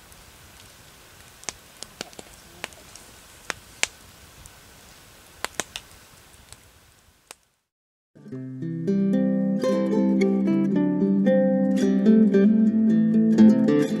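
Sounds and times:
campfire crackling and popping: 0.0 - 7.7
faint hiss: 0.0 - 7.7.

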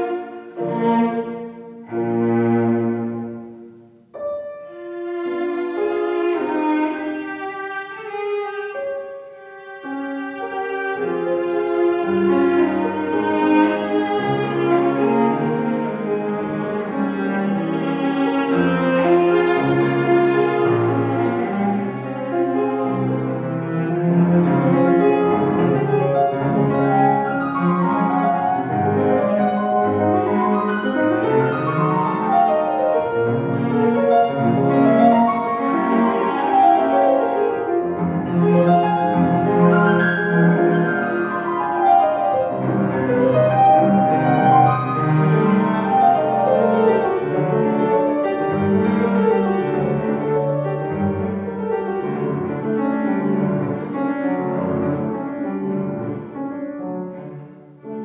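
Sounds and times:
cello: 0.0 - 58.0
grand piano: 0.0 - 58.0.

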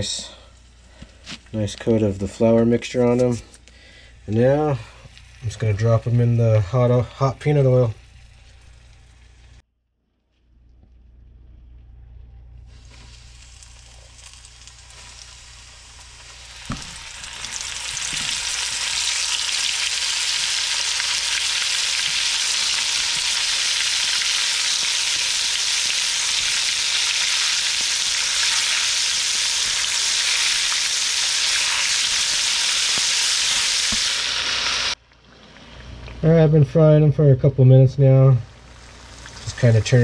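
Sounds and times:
mushrooms sizzling in hot oil: 4.2 - 9.6, 12.7 - 35.0, 38.3 - 40.0.

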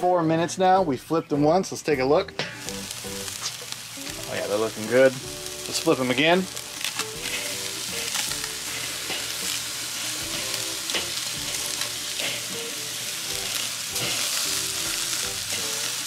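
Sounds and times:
chicken sizzling on a grill: 2.4 - 16.0
metal tongs clicking on grate: 6.8 - 9.5, 10.3 - 12.5.

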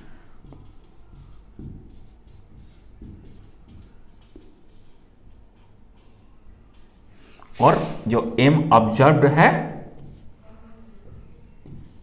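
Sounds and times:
marker pen scratching on board: 0.4 - 8.0, 9.6 - 10.4, 11.0 - 12.0.

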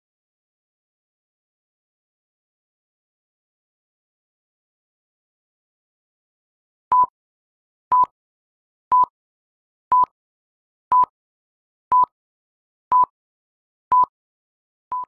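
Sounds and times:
high-pitched countdown beeps: 6.9 - 7.1, 7.9 - 8.1, 8.9 - 9.1, 9.9 - 10.1, 10.9 - 11.1, 11.9 - 12.1, 12.9 - 13.1, 13.9 - 14.1.

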